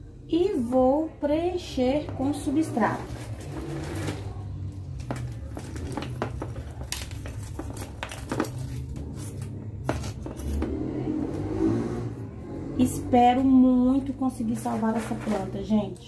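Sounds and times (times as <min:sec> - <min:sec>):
potting mix rustling: 0:02.2 - 0:10.7, 0:14.4 - 0:16.0.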